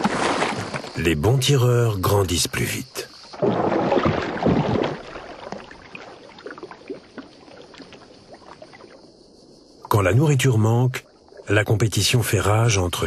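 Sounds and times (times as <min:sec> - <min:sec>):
water splashing and gurgling: 0:00.0 - 0:01.5, 0:03.1 - 0:12.8
water dripping: 0:03.4 - 0:09.0.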